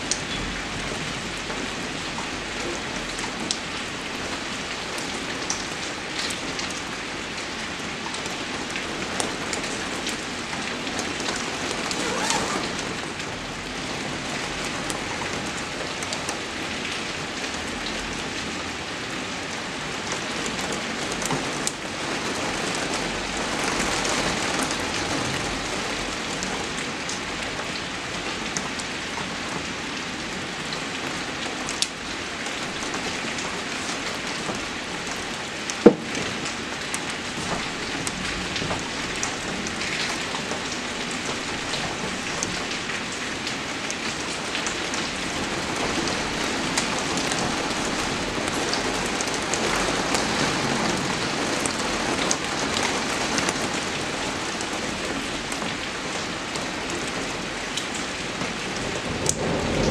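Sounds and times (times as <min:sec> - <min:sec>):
sharp ticks of raindrops: 0:00.0 - 0:59.9
steady rain falling: 0:00.0 - 0:59.9.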